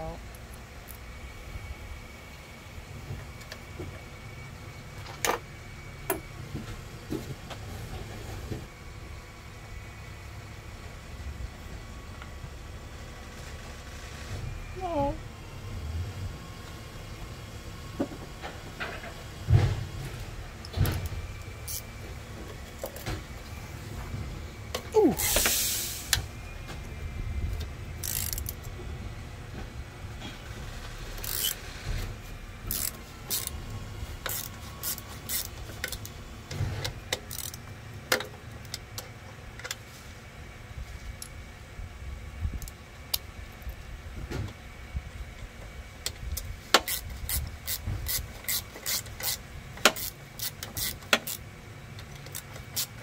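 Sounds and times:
socket wrench clicking: 28.0 - 28.6, 31.2 - 31.6, 32.7 - 33.6, 34.2 - 36.1, 46.8 - 51.4, 52.0 - 53.0.

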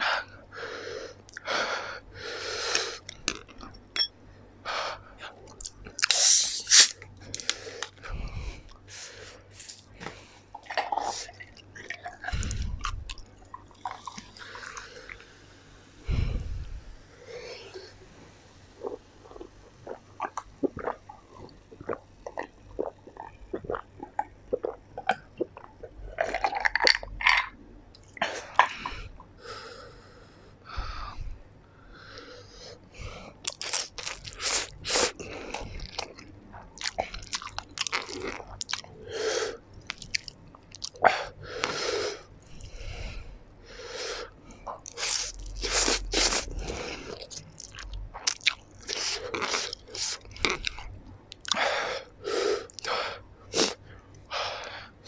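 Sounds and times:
chewing and slurping noodles: 10.5 - 15.2, 18.8 - 27.6, 33.4 - 39.0, 44.6 - 51.8
person gulping from glass: 10.5 - 15.2, 18.8 - 27.6.

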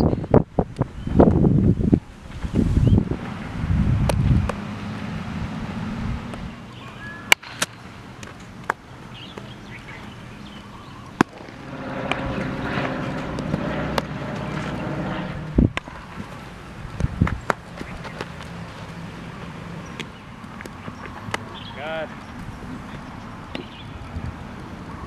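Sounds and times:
wind noise: 0.0 - 6.6, 11.4 - 18.3, 22.1 - 25.0
steady low drone: 10.2 - 16.9
baseball bat and glove pops: 11.1 - 11.5.

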